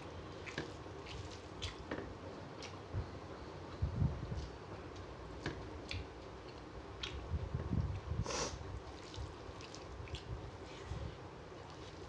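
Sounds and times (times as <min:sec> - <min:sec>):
soft chewing: 0:00.3 - 0:02.9, 0:03.6 - 0:08.1, 0:08.8 - 0:12.0
short sniff: 0:08.2 - 0:08.6.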